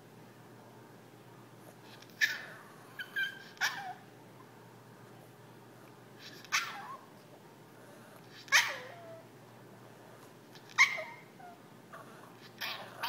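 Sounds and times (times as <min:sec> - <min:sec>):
small dog barking: 0:02.2 - 0:04.0, 0:06.2 - 0:07.0, 0:08.5 - 0:09.2, 0:10.6 - 0:11.6, 0:12.5 - 0:13.0.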